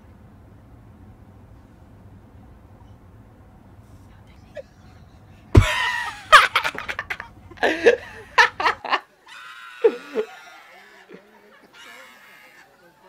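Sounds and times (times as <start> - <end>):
young man laughing hard: 4.6 - 9.0, 9.7 - 12.7.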